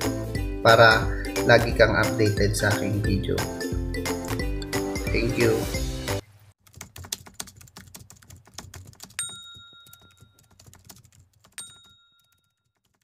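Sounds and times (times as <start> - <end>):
computer keyboard typing clicks: 6.7 - 13.0
bright ringing dings: 9.2 - 10.4, 11.6 - 12.6.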